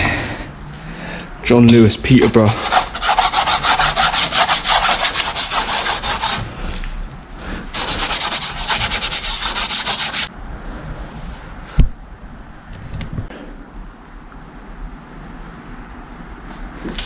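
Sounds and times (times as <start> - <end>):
scratchy rubbing: 2.2 - 6.5, 7.7 - 10.3.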